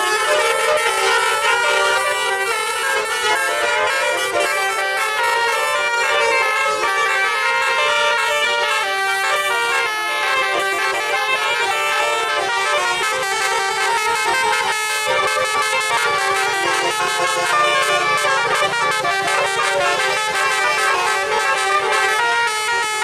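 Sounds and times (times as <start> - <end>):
bus horns playing a tune: 0.0 - 23.0.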